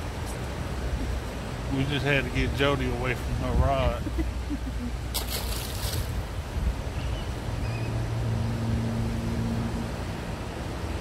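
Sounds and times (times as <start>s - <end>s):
low steady hum: 0.0s - 11.0s
rushing river current: 0.0s - 11.0s
wind buffeting microphone: 1.9s - 7.6s.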